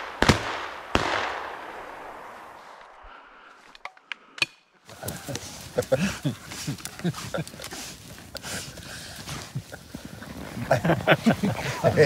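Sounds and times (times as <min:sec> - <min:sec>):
shotgun shots echoing: 0:00.0 - 0:02.6.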